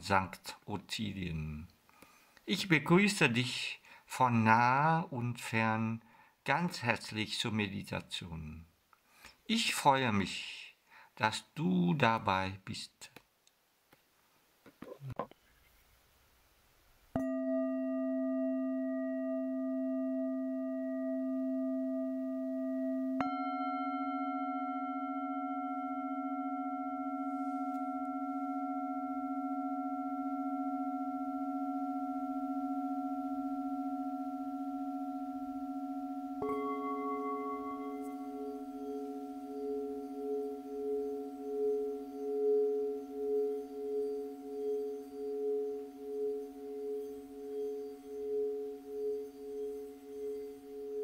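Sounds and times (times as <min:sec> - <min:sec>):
singing bowls ringing: 0:17.2 - 0:51.0.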